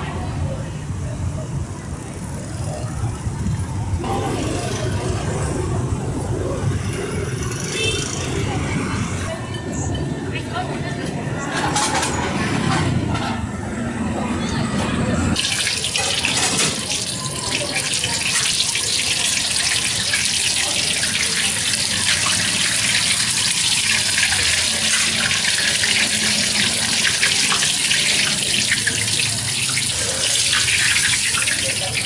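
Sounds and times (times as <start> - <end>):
oil sizzling in a wok: 15.4 - 32.0.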